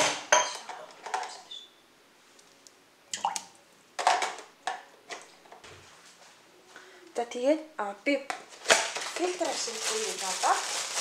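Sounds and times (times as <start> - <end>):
kitchenware clinking: 0.0 - 1.4.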